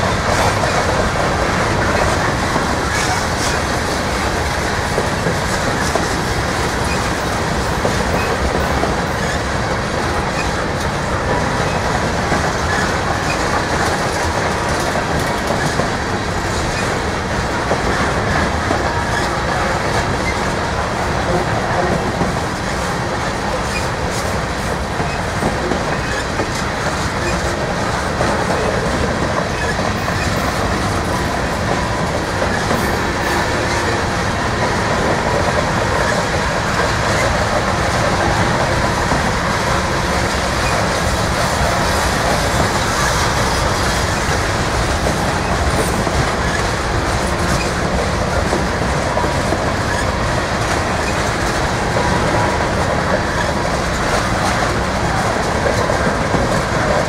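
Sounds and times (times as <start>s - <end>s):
steel wheels running on rail: 0.0s - 57.0s
train clicks: 0.0s - 57.0s.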